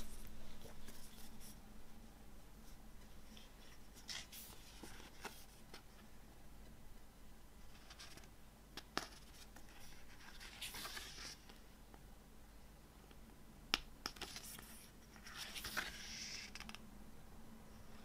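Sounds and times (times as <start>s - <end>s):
paper pages turning: 3.2s - 5.8s, 8.9s - 11.6s, 14.1s - 16.8s.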